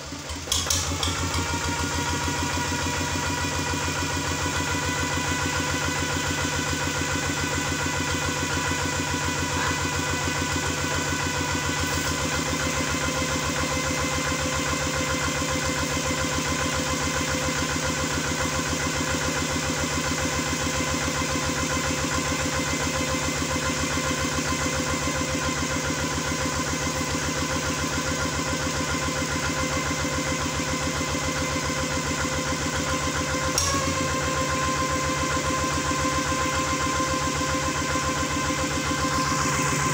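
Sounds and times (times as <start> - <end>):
diesel engine running: 0.0 - 39.9
brief click: 33.5 - 33.8.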